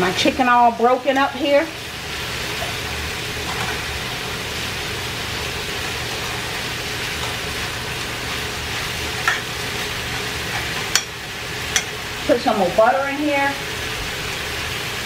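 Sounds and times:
chicken sizzling in a skillet: 0:00.0 - 0:15.0
fork stirring and tapping pan: 0:09.2 - 0:09.5, 0:10.5 - 0:12.0.

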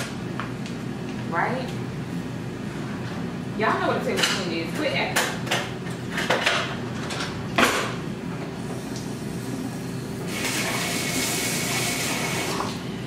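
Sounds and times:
utensils and dishes clattering: 0:05.2 - 0:07.9
kitchen tap running: 0:10.2 - 0:12.8.

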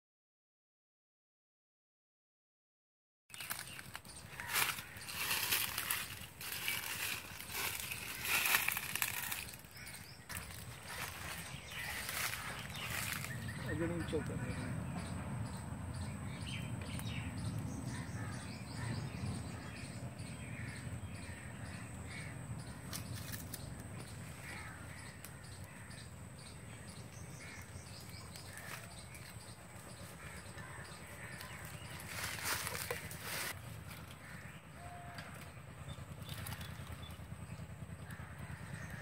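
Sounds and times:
crows cawing: 0:03.5 - 0:15.1, 0:17.9 - 0:19.8, 0:20.4 - 0:23.4, 0:24.0 - 0:35.6, 0:37.8 - 0:39.0.

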